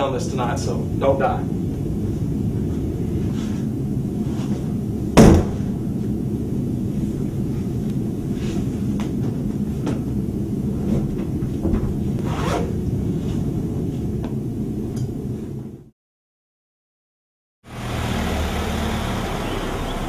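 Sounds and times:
steady low rumble: 0:00.0 - 0:15.9
loud knock: 0:05.2 - 0:05.8.

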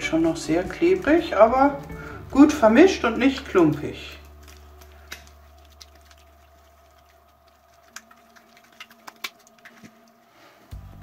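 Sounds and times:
slime squelching in hands: 0:02.4 - 0:10.4.

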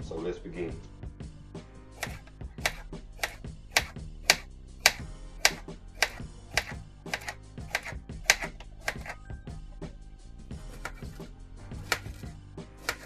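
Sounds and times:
soft background music: 0:00.0 - 0:13.0
knife chopping on plastic board: 0:02.0 - 0:09.2, 0:10.7 - 0:13.0.

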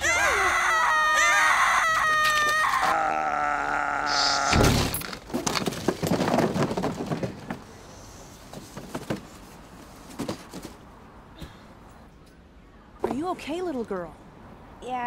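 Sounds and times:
cardboard boxes tumbling: 0:05.2 - 0:07.7.

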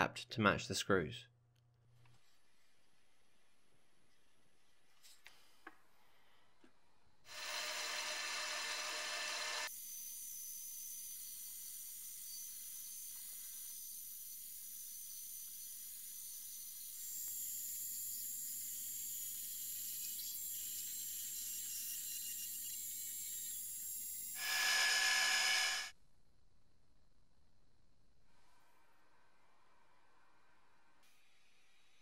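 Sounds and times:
metal lathe drilling with hiss and whine: 0:07.4 - 0:25.9.

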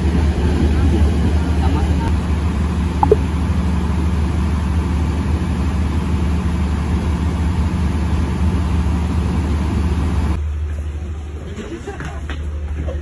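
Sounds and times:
train carriage rumble: 0:00.0 - 0:02.8, 0:06.6 - 0:13.0.

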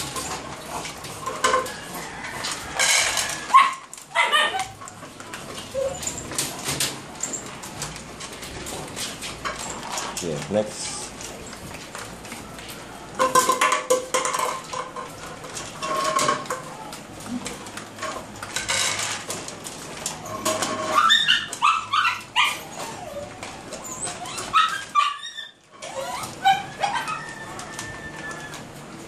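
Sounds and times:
small dogs yipping and whining: 0:00.0 - 0:00.8, 0:01.6 - 0:07.6, 0:20.1 - 0:28.8.

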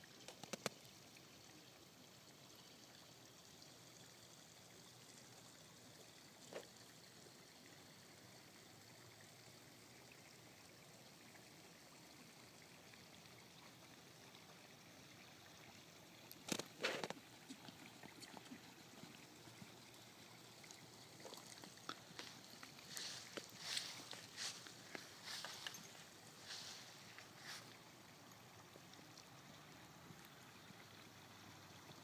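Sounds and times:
faint outdoor hiss: 0:00.0 - 0:32.0
horse hooves on dirt: 0:21.2 - 0:27.7.

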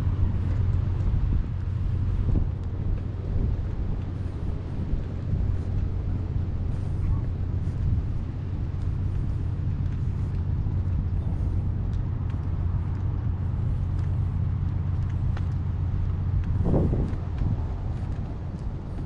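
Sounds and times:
low engine rumble: 0:00.0 - 0:19.0.

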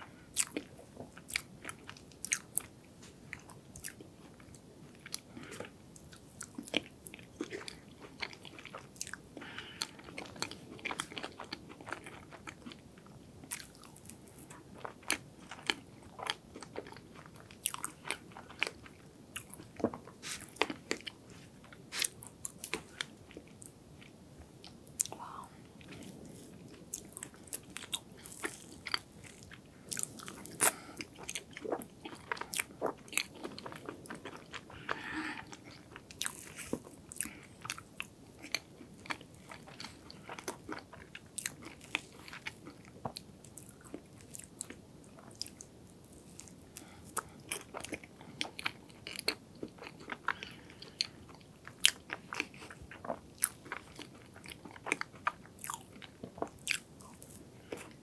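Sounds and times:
chewing crunchy cake: 0:00.0 - 0:58.0.

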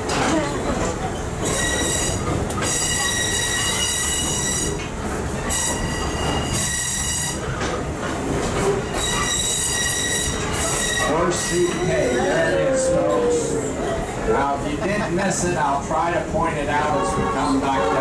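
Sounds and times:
railcar rumbling on track: 0:00.0 - 0:18.0
train wheels squealing on rails: 0:01.1 - 0:07.8, 0:08.4 - 0:13.7.

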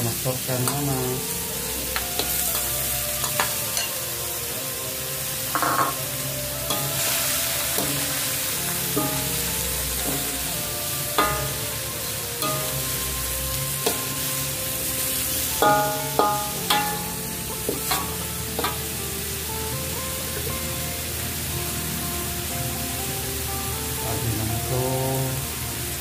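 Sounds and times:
prawns sizzling in a wok: 0:00.0 - 0:26.0
metal spatula scraping pan: 0:02.2 - 0:04.1, 0:05.5 - 0:18.9.

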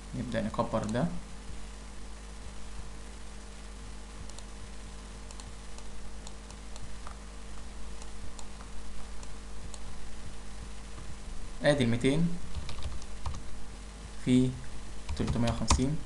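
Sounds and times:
steady low hum: 0:00.0 - 0:16.0
computer mouse clicks: 0:04.2 - 0:04.5, 0:05.2 - 0:07.2, 0:08.0 - 0:09.9, 0:12.5 - 0:13.4, 0:15.1 - 0:15.9.

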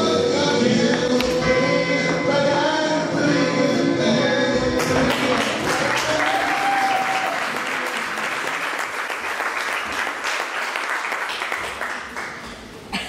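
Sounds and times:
song music: 0:00.0 - 0:08.6
audience applauding: 0:04.8 - 0:12.5.

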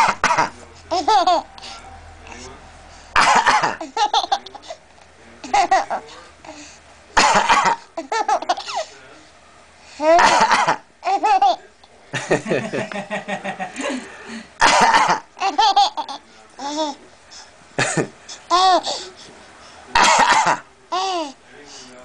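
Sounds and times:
adult fake coughing: 0:00.0 - 0:00.6, 0:03.2 - 0:03.8, 0:07.2 - 0:07.9, 0:10.1 - 0:10.9, 0:14.6 - 0:15.3, 0:17.8 - 0:18.1, 0:19.9 - 0:20.7
infant giggling: 0:00.9 - 0:01.7, 0:17.8 - 0:19.1.

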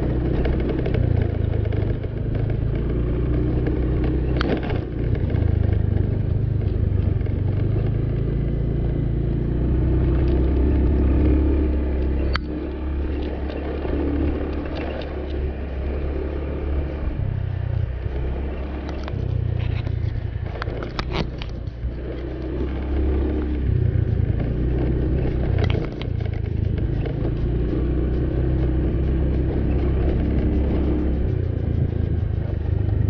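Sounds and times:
knocks and rattles over bumps: 0:00.0 - 0:08.6, 0:24.1 - 0:27.7
motor scooter engine running: 0:00.0 - 0:33.0.

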